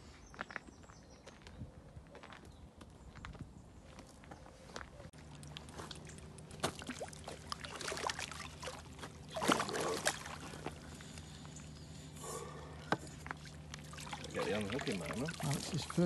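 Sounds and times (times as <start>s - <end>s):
water sloshing in net: 5.8s - 11.3s, 13.2s - 16.0s
fish splashing at surface: 5.9s - 10.8s, 13.2s - 16.0s.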